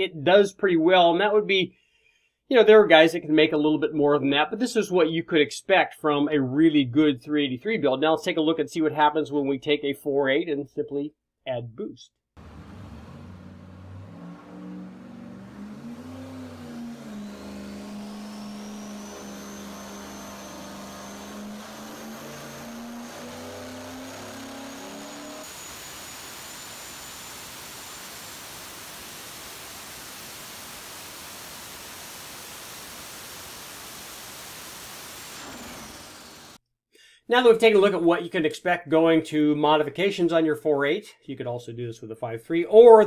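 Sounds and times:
turbocharged engine running: 12.4s - 31.7s
high turbo whine: 12.4s - 36.6s.

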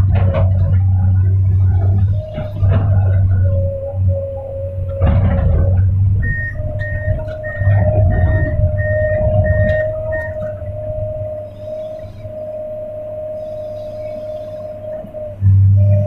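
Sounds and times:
excavator engine and hydraulics: 0.0s - 16.0s
warning beeper: 4.8s - 16.0s.

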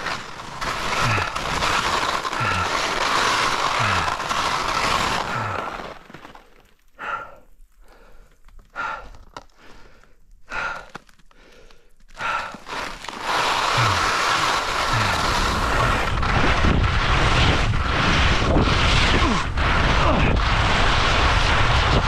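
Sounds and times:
skis scraping over snow: 0.0s - 6.7s, 12.2s - 22.0s
short breaths: 7.0s - 16.0s.

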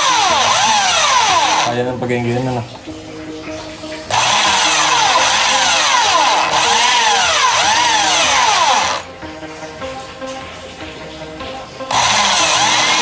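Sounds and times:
electric drill whining: 0.0s - 1.7s, 4.1s - 9.1s, 11.9s - 13.0s.

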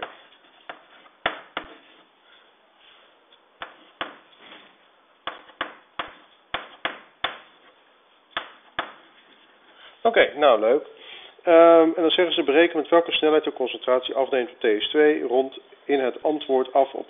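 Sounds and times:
chalk tapping on blackboard: 0.0s - 2.0s, 3.6s - 4.4s, 5.2s - 9.1s.

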